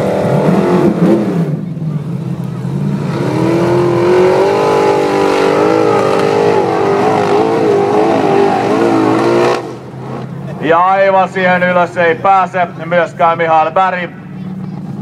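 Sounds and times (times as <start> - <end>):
car engine revving hard: 0.0 - 10.4.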